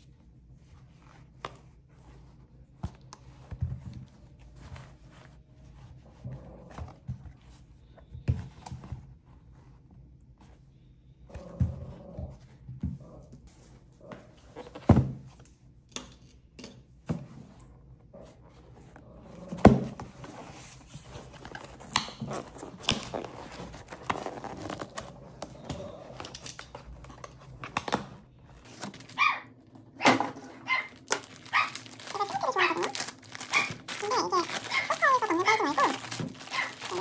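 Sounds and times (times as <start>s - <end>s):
boxes knocking and rustling: 19.5s - 25.9s, 30.0s - 37.0s
dog barking: 29.1s - 31.8s, 33.5s - 33.8s, 36.5s - 37.0s.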